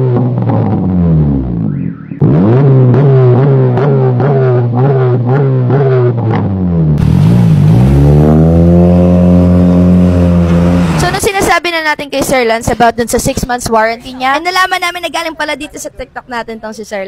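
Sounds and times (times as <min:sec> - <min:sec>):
car exhaust note pulling away: 0:00.0 - 0:11.2
car engine revving: 0:00.0 - 0:11.7.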